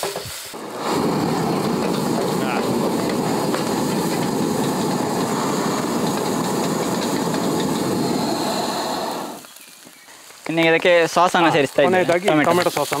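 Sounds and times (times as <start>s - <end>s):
vegetables sizzling in a wok: 0.0s - 10.0s, 12.4s - 13.0s
gas burner rushing: 0.5s - 9.5s.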